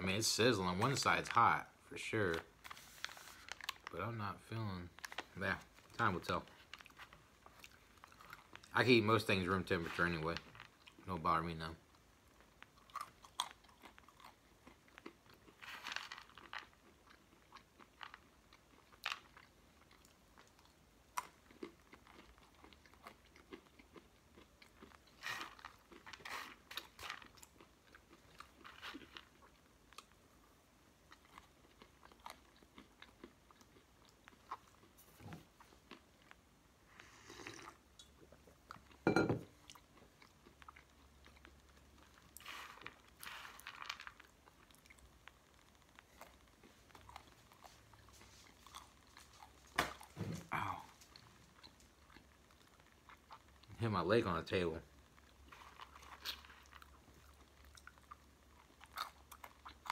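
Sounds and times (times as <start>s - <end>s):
person chewing crunchy food: 4.9s - 8.7s, 11.9s - 30.2s, 31.0s - 53.7s, 54.9s - 59.9s.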